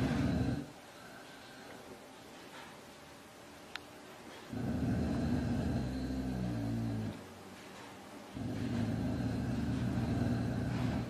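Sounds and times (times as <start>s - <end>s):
large animal growling: 4.5s - 7.2s, 8.4s - 11.0s.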